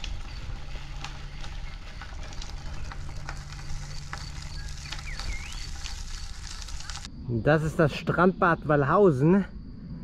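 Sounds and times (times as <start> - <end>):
low motor hum: 0.0 - 7.2
crackling rumbling outdoor noise: 0.0 - 10.0.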